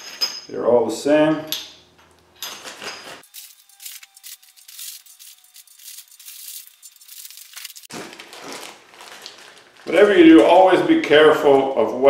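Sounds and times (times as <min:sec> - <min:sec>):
metal parts clinking in a bag: 0:02.4 - 0:07.9
plastic bag rustling: 0:03.2 - 0:10.8.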